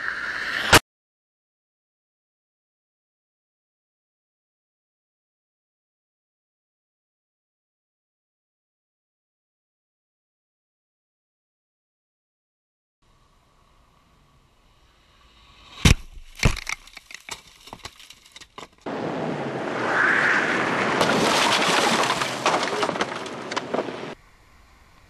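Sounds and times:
dense noise with cracks: 0:15.7 - 0:18.9, 0:20.6 - 0:24.2
debris clattering: 0:15.9 - 0:18.9, 0:20.8 - 0:24.2
motorcycle crashing into car: 0:20.7 - 0:24.2.

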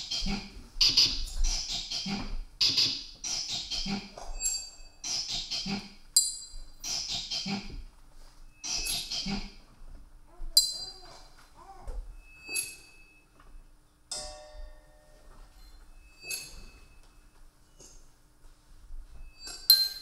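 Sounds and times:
faint wavering tones: 0:12.0 - 0:18.1
hard object clinking: 0:19.4 - 0:20.0.

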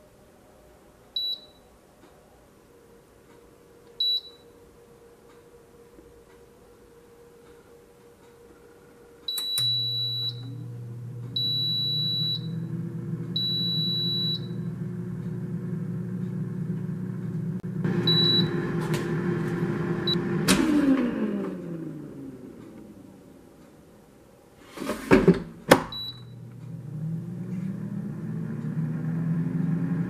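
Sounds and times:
air fryer fan humming: 0:08.9 - 0:23.6, 0:25.6 - 0:30.0
high beeps: 0:13.4 - 0:14.7, 0:18.0 - 0:18.7.

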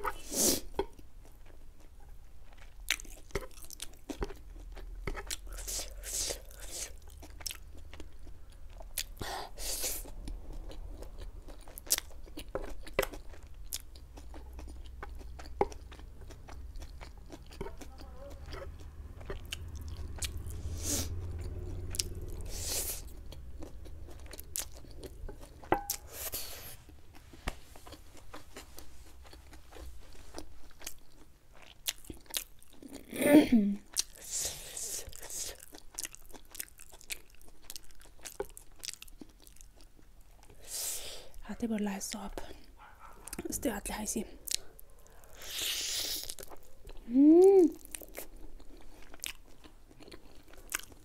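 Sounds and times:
close chewing of noodles: 0:00.0 - 0:33.2, 0:33.8 - 0:41.4, 0:42.1 - 0:43.5, 0:44.3 - 0:51.0.

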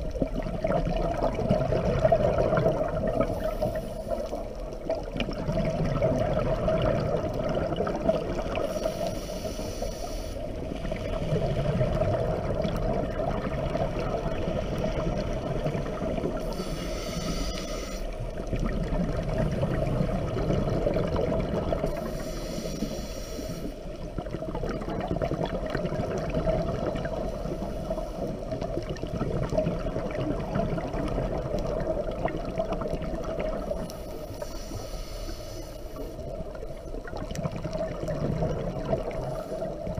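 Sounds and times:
regulator bubbling underwater: 0:00.0 - 0:09.2, 0:10.5 - 0:22.3, 0:23.8 - 0:34.2, 0:36.2 - 0:39.9
regulator breath hiss: 0:08.6 - 0:10.6, 0:16.4 - 0:18.1, 0:22.0 - 0:23.9, 0:33.9 - 0:36.2.

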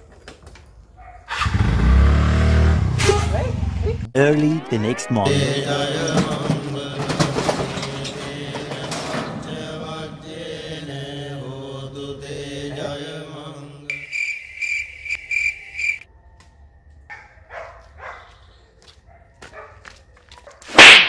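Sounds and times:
chant-like vocal music: 0:04.8 - 0:13.9
cricket chirping: 0:13.9 - 0:16.3.

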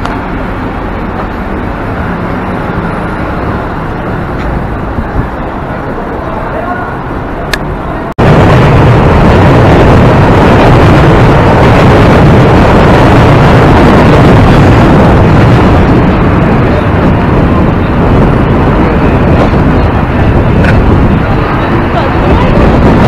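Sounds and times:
crowd noise: 0:00.0 - 0:08.3, 0:15.0 - 0:23.0
city traffic roar: 0:00.0 - 0:23.0.

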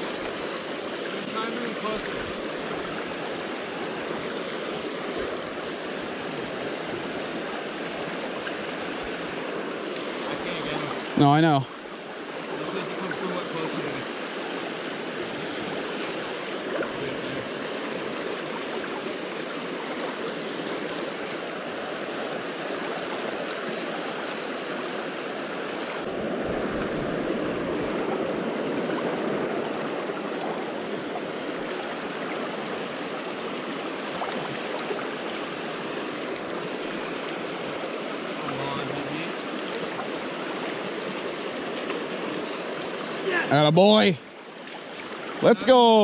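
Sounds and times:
water rushing over rocks: 0:33.4 - 0:46.0.

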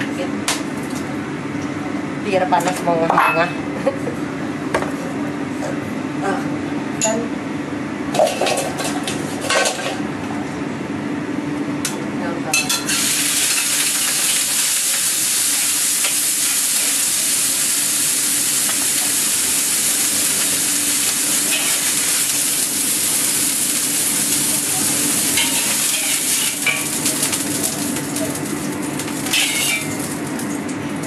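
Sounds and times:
vegetables sizzling in a wok: 0:12.7 - 0:31.0
metal spatula scraping a wok: 0:29.3 - 0:29.9.

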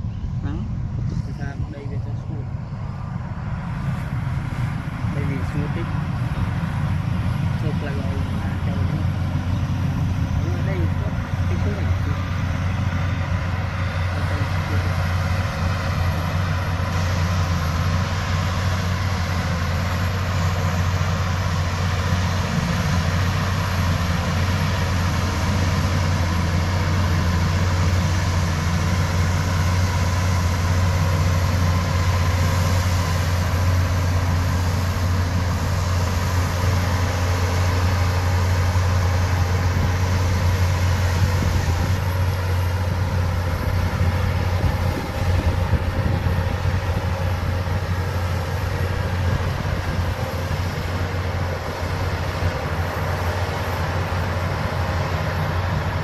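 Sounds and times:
bulldozer diesel engine drone: 0:00.0 - 0:56.0.

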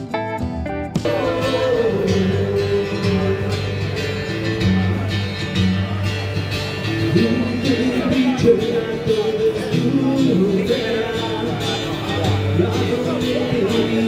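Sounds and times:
strummed guitar chords: 0:00.0 - 0:14.0
person singing: 0:01.0 - 0:05.0, 0:06.9 - 0:14.0.

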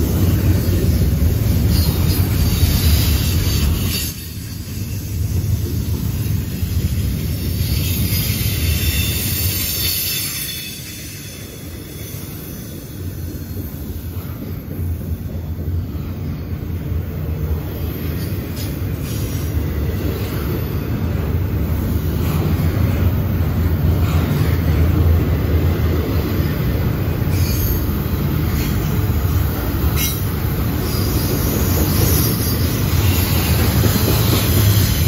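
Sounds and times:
train wheels rumbling on rail: 0:00.0 - 0:35.0
high-pitched wheel squeals: 0:07.8 - 0:12.7.

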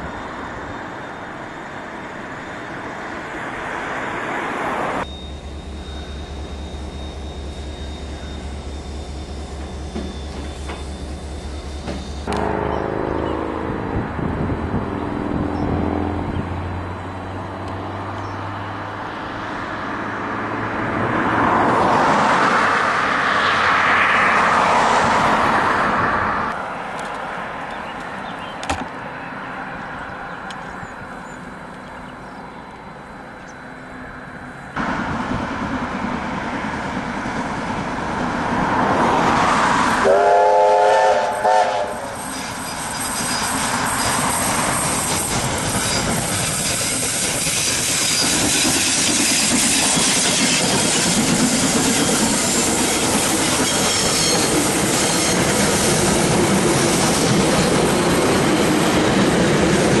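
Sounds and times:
train rumbling past: 0:00.0 - 1:00.0
steam locomotive whistle: 0:40.0 - 0:42.7.

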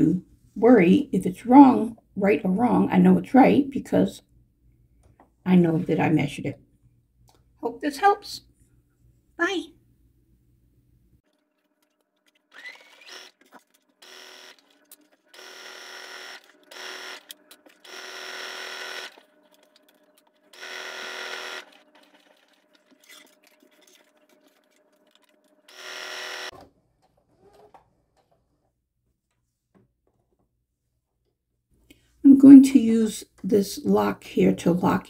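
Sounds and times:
sewing machine stitching: 0:11.3 - 0:28.8.

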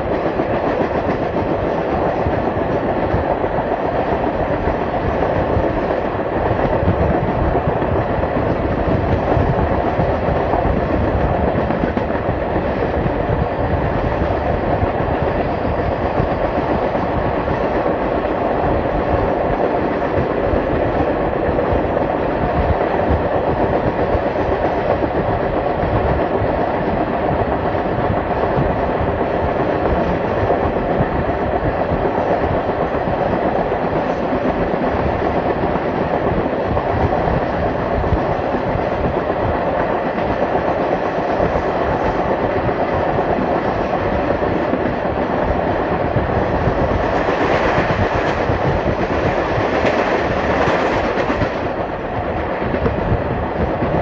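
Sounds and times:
train wheels clattering on rails: 0:00.0 - 0:54.0.

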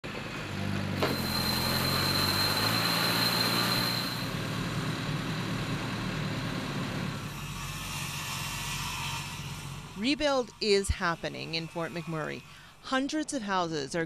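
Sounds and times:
heavy machinery engine running: 0:00.0 - 0:07.8
high steady whine: 0:01.0 - 0:07.3.

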